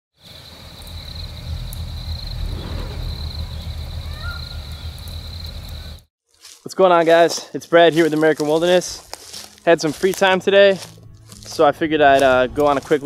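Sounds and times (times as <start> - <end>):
campfire flames rumbling: 0.2 - 6.1
fire crackling: 0.2 - 6.1.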